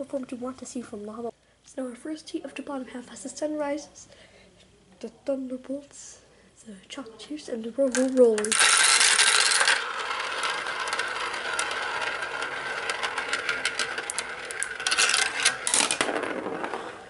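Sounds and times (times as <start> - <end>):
marbles clattering: 7.9 - 17.0
marbles clicking together: 7.9 - 17.0
marbles rolling on plastic track: 7.9 - 17.0.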